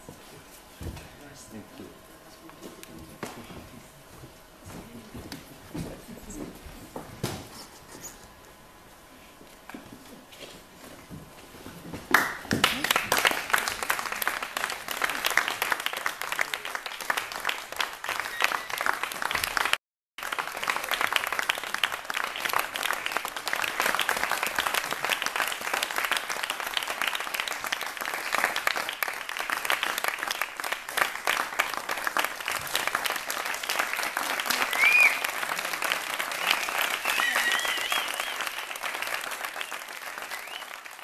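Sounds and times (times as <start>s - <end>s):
audience applauding: 12.1s - 41.0s.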